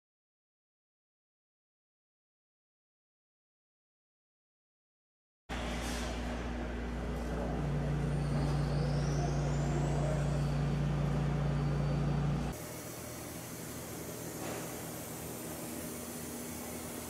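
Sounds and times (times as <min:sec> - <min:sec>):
machine hum with low drone: 0:05.5 - 0:17.0.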